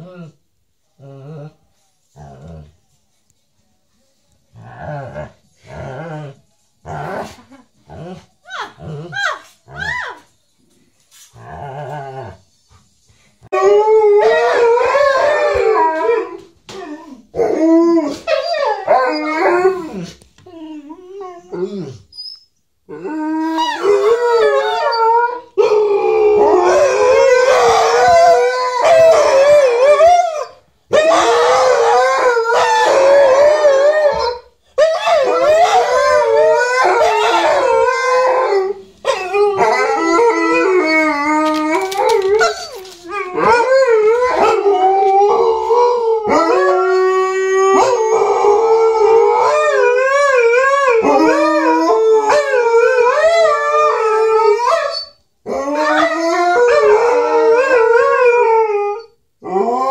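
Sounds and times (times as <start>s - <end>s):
dogs howling: 13.5s - 22.0s, 22.9s - 59.9s.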